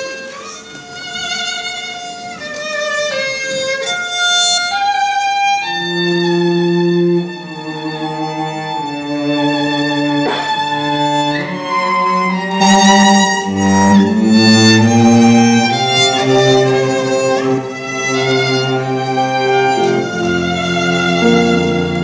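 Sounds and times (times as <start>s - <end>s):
cello playing: 0.0s - 22.0s
violin melody with vibrato: 0.0s - 22.0s
grand piano: 6.2s - 22.0s.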